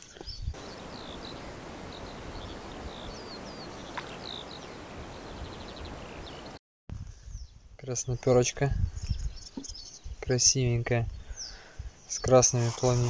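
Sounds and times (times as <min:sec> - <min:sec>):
small birds chirping: 0:00.0 - 0:06.6, 0:07.3 - 0:10.4, 0:11.0 - 0:13.0
outdoor hiss: 0:00.6 - 0:06.6.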